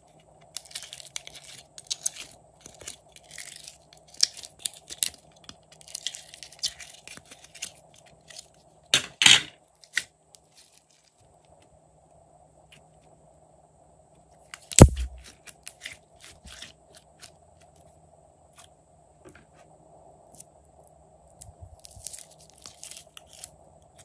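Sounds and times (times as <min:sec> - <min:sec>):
slime squeezed crackling and popping: 0:14.6 - 0:15.8, 0:21.3 - 0:23.6.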